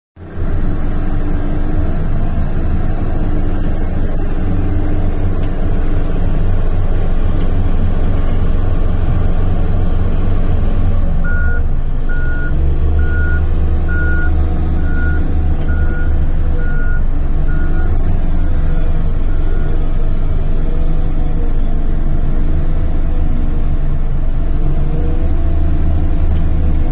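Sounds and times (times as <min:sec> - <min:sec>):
heavy diesel engine droning: 0:00.2 - 0:26.9
reversing alarm beeps: 0:11.2 - 0:18.0.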